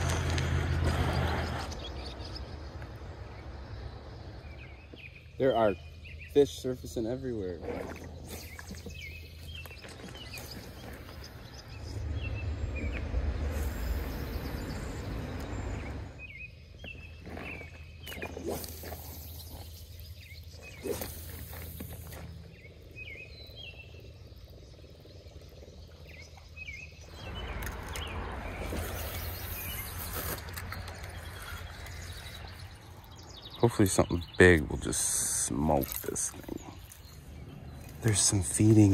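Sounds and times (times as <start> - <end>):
small birds chirping: 0.0 - 38.9
low rumbling noise: 10.2 - 18.0, 22.2 - 38.9.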